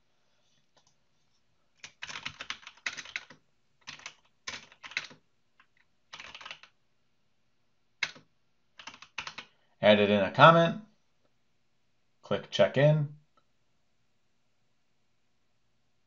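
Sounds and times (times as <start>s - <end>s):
typing on computer keyboard: 1.8s - 6.8s, 8.0s - 9.5s.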